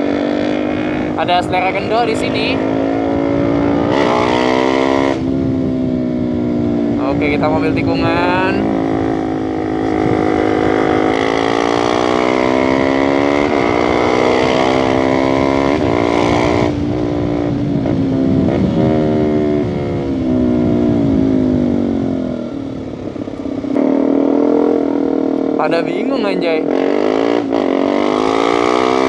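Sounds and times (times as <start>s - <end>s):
motorcycle engine accelerating: 0.0s - 29.0s
wind on microphone: 0.0s - 29.0s.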